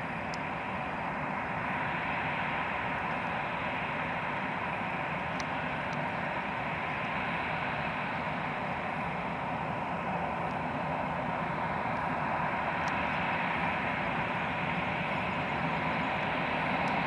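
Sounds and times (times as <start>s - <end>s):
jet engines idling: 0.0s - 17.0s.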